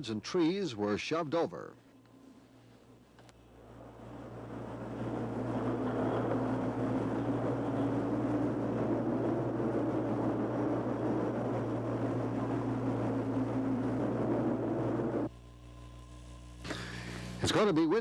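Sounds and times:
constant low hum: 0.0 - 18.0
rushing outdoor noise: 2.5 - 15.3.

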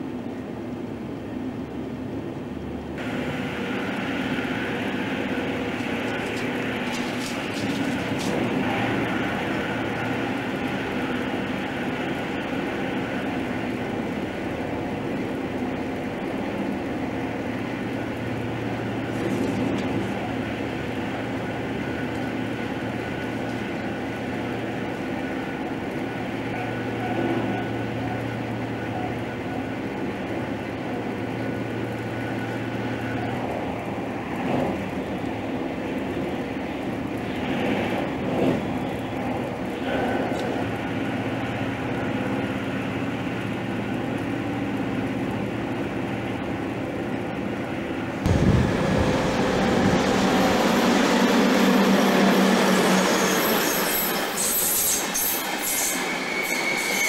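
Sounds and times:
train wheels rolling on rails: 0.0 - 57.0
low hum: 48.2 - 52.3.

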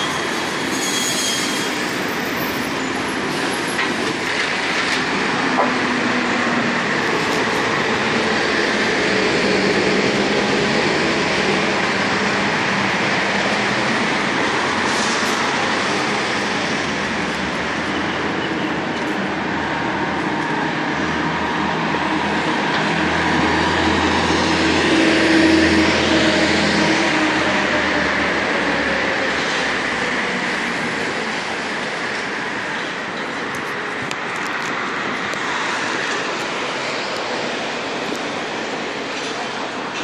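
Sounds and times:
vehicle rumble and hiss: 11.4 - 17.9.

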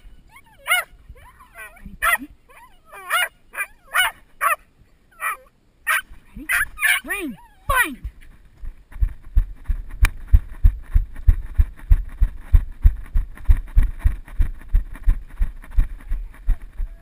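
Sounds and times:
running footsteps: 8.0 - 17.0.

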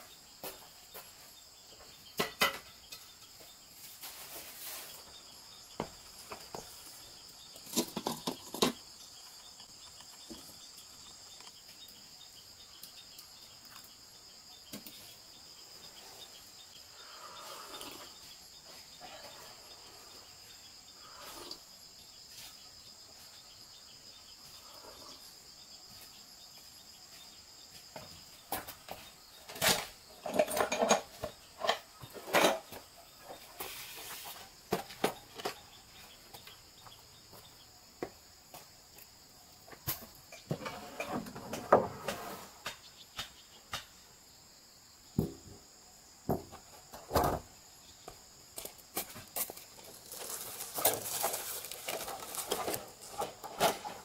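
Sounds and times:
crickets chirping: 0.0 - 54.0
hand tools rattling in wooden crate: 29.5 - 32.8, 49.0 - 54.0.

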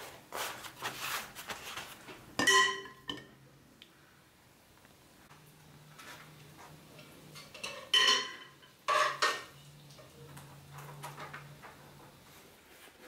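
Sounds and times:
metal cookware clinking: 2.4 - 3.4, 7.0 - 10.2.

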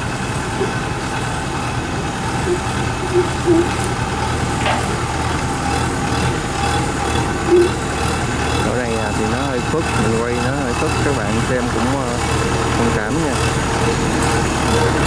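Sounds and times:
diesel engine running: 0.0 - 15.0
short high-pitched blips: 2.4 - 3.9, 7.5 - 7.8.

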